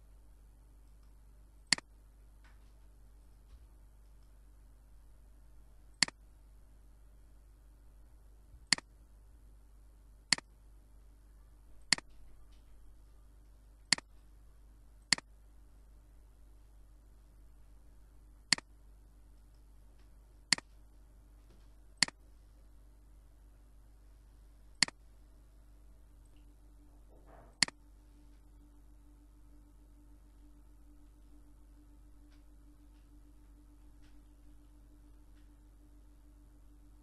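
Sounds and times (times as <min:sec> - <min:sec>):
faint steady hum: 0:00.0 - 0:37.0
computer mouse clicking: 0:00.8 - 0:01.9, 0:08.6 - 0:08.9, 0:10.3 - 0:10.5, 0:11.8 - 0:12.6, 0:13.8 - 0:14.1, 0:15.0 - 0:15.3, 0:18.5 - 0:18.7, 0:20.5 - 0:20.8, 0:24.8 - 0:25.0.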